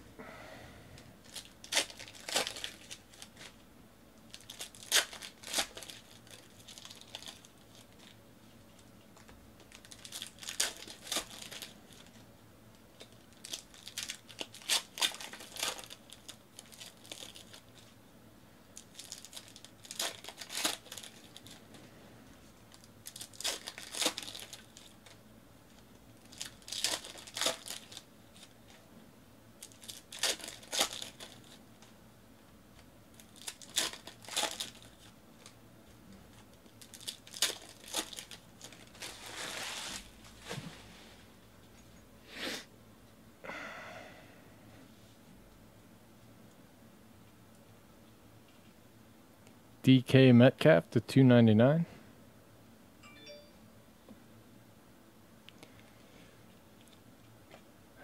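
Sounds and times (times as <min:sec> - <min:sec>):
foil wrappers crinkling: 0:01.2 - 0:03.6, 0:04.3 - 0:12.2, 0:12.9 - 0:18.0, 0:18.7 - 0:21.7, 0:22.7 - 0:28.8, 0:29.6 - 0:31.9, 0:33.1 - 0:35.6, 0:36.3 - 0:40.6.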